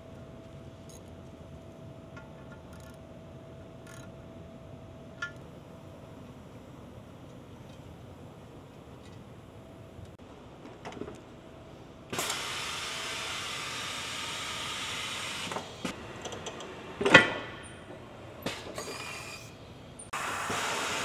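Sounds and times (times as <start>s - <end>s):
air hissing: 18.4s - 21.0s.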